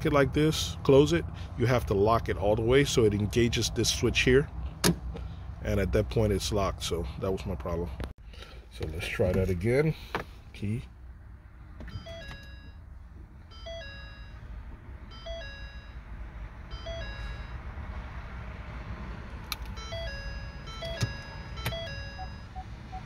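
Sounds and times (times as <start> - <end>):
short beeps: 11.9 - 12.8, 13.5 - 14.5, 15.1 - 17.6, 19.7 - 23.0
two-note warning chime: 15.1 - 17.6, 19.7 - 23.0.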